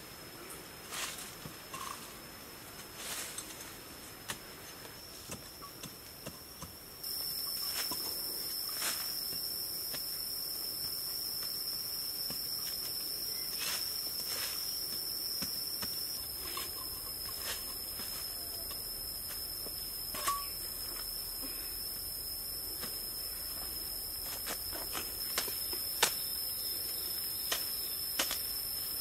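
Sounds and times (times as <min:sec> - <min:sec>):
insects droning: 0:00.0 - 0:29.0
machete chopping into dry dirt: 0:24.5 - 0:26.3.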